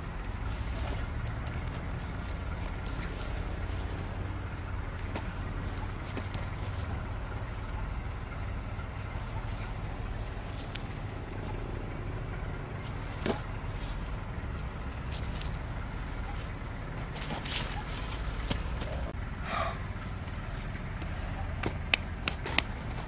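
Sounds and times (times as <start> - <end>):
rustling foliage: 0.0 - 11.9, 12.8 - 19.2.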